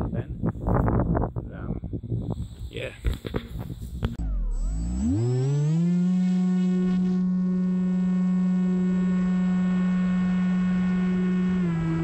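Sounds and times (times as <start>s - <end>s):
electric motor and propeller whine: 2.4s - 12.0s.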